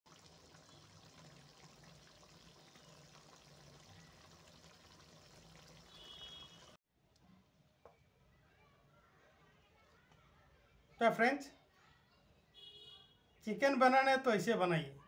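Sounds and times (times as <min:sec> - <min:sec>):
faint watery hiss: 0:00.5 - 0:06.8.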